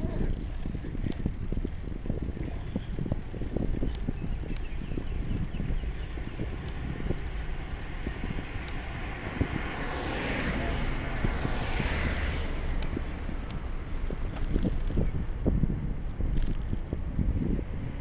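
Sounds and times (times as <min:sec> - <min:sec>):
wind rumbling on microphone: 0:00.0 - 0:18.0
car passing with tyre hiss: 0:08.8 - 0:13.5.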